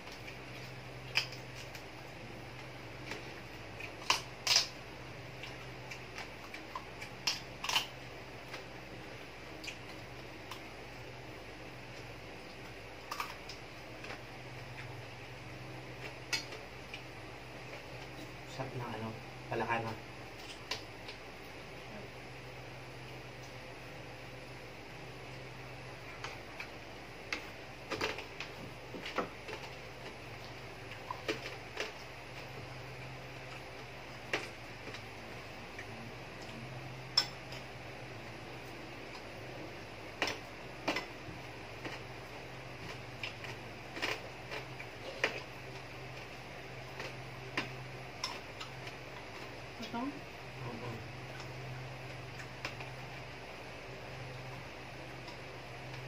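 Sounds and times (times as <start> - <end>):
chewing clicks and crackles: 0.0 - 8.8, 9.5 - 10.8, 11.9 - 15.0, 40.1 - 49.6
steady low hum: 0.0 - 56.0
crunching fried food: 0.1 - 11.2
chewing clicks: 5.4 - 8.6.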